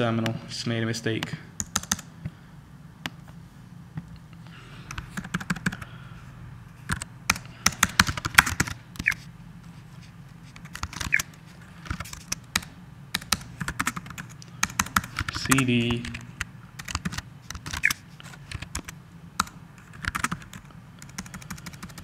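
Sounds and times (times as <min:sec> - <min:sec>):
steady low hum: 0:00.0 - 0:22.0
computer keyboard typing: 0:01.6 - 0:02.1, 0:04.9 - 0:05.9, 0:06.9 - 0:09.2, 0:10.5 - 0:22.0.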